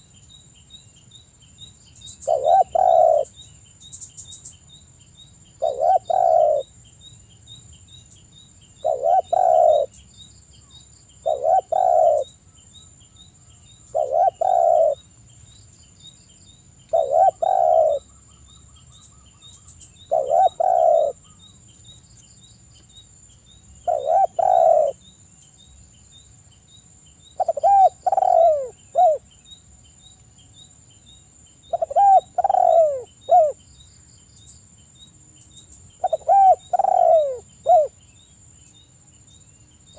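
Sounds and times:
dove cooing: 2.2s - 3.3s, 5.6s - 6.7s, 8.8s - 9.9s, 11.2s - 12.3s, 13.9s - 15.0s, 16.9s - 18.0s, 20.1s - 21.4s, 23.8s - 25.0s, 27.4s - 29.2s, 31.7s - 33.6s, 36.0s - 38.0s.

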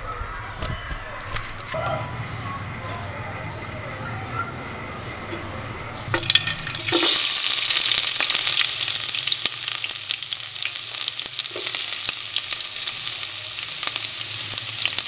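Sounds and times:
onions sizzling in hot oil: 6.2s - 15.0s.

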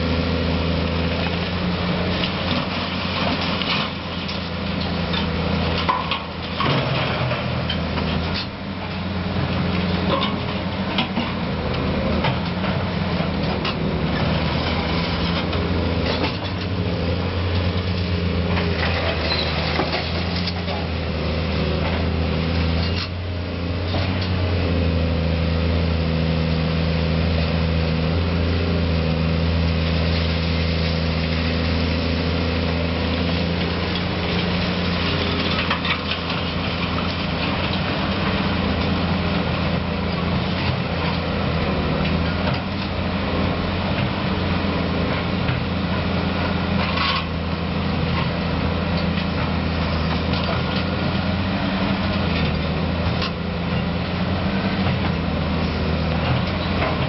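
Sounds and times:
excavator diesel engine running: 0.0s - 57.0s
rubble clattering into truck bed: 34.5s - 37.8s.

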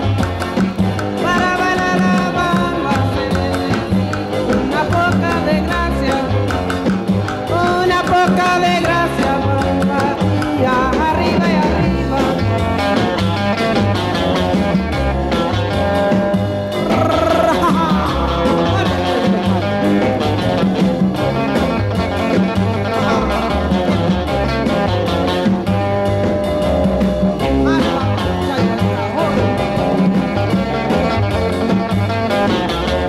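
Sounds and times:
guitar-led background music: 0.0s - 33.0s.

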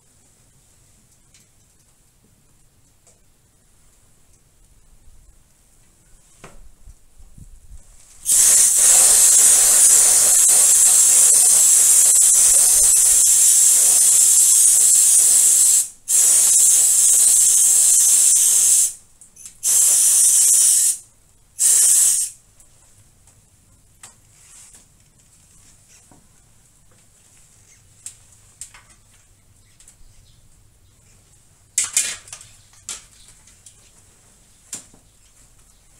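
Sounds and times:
aerosol can spraying: 8.2s - 19.0s, 19.6s - 21.0s, 21.6s - 22.4s.

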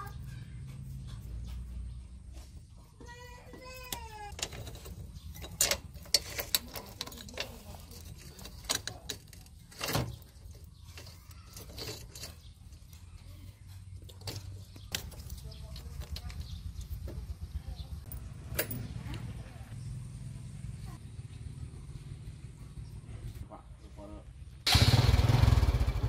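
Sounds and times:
metallic chain clicks and clinks: 4.3s - 12.9s.

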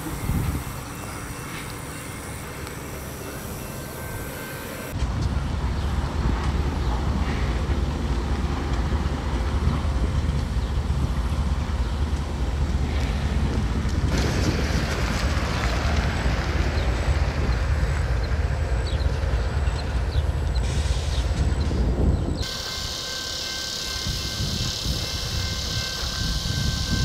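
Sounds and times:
wind on microphone: 0.0s - 0.9s, 5.0s - 18.5s, 20.2s - 22.8s
diesel locomotive idling: 0.0s - 27.0s.

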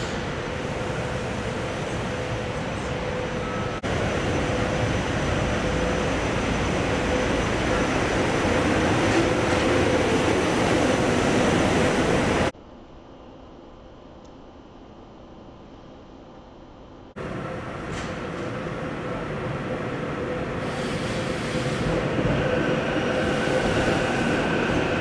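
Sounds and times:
train rolling past: 0.0s - 12.6s, 17.2s - 25.0s.

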